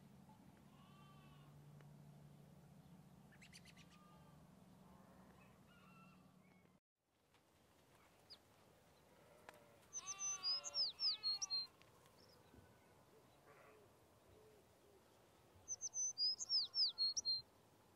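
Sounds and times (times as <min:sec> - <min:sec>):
bird calls gliding downward: 0:09.9 - 0:11.7, 0:15.7 - 0:17.4.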